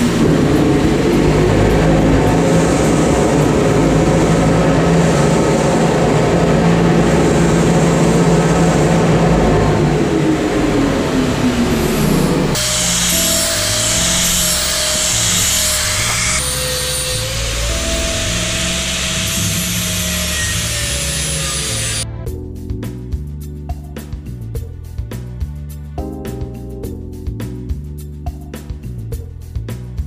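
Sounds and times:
cut-off saw cutting steel: 0:11.2 - 0:22.0
angle grinder grinding steel: 0:11.7 - 0:22.0.

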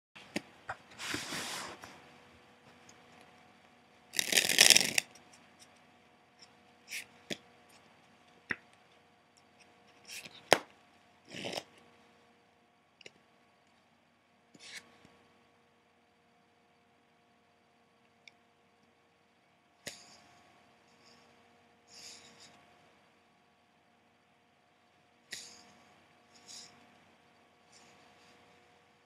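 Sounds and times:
playing cards snapping: 0:04.2 - 0:05.1
playing cards rubbing: 0:04.2 - 0:05.2
playing cards rustling: 0:04.2 - 0:05.2.

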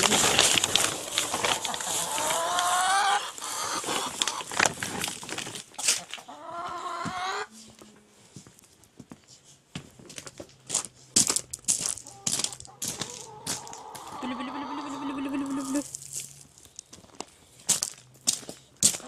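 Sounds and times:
hens clucking: 0:00.0 - 0:05.2, 0:05.8 - 0:07.6, 0:11.9 - 0:15.9
clicks and crunches: 0:00.0 - 0:06.2
grain feed rustling: 0:00.0 - 0:06.4
hen call rising: 0:13.2 - 0:15.9.

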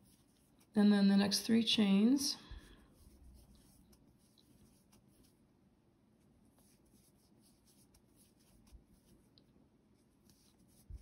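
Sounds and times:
yarn rustling on crochet hook: 0:00.0 - 0:01.0, 0:02.6 - 0:05.5, 0:06.2 - 0:11.0.

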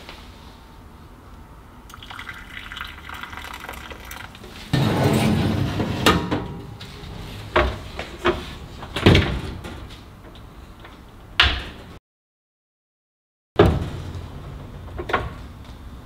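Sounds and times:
baking tray sliding on oven rack: 0:04.7 - 0:08.6
oven door swung shut: 0:13.6 - 0:14.0.

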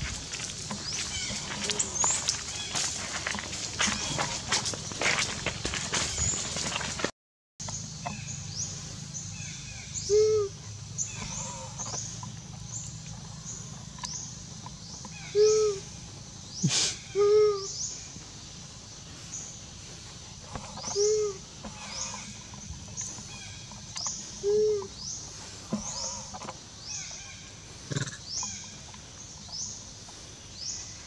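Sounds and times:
high chirping of birds or insects: 0:00.0 - 0:07.0, 0:07.6 - 0:31.0
baby monkey coo calls: 0:09.4 - 0:11.9, 0:15.1 - 0:15.9, 0:16.6 - 0:17.9, 0:20.6 - 0:22.3, 0:24.3 - 0:25.0.

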